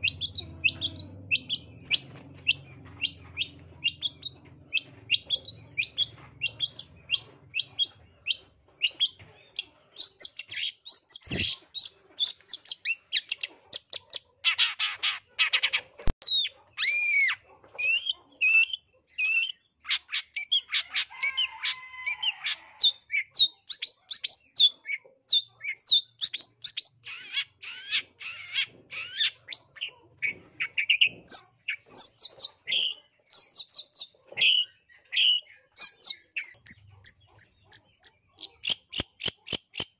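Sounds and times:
shrike singing: 0.0 - 13.4.

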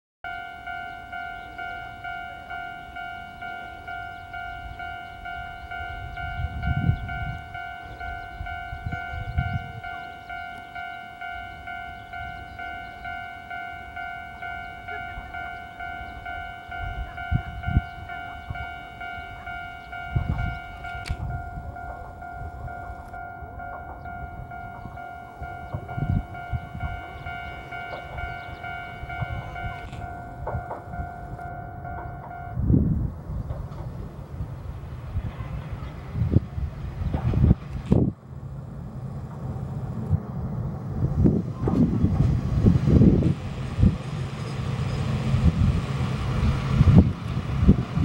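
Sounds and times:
diesel railcar rumbling: 0.2 - 48.0
level crossing alarm clanging: 0.3 - 32.7.

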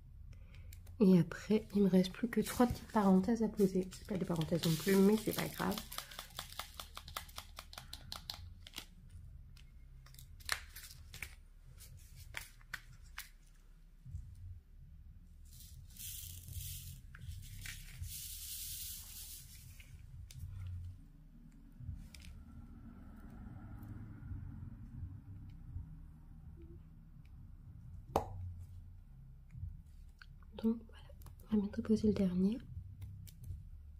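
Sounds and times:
plastic film tearing hiss: 3.6 - 8.9, 15.6 - 19.9.

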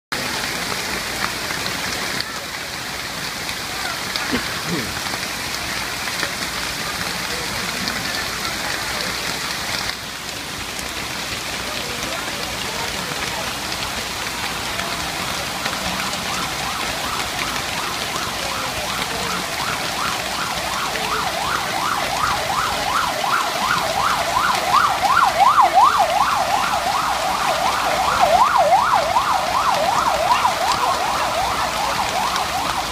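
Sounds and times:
heavy rain on a street: 0.1 - 32.9
siren yelping: 15.1 - 32.9.

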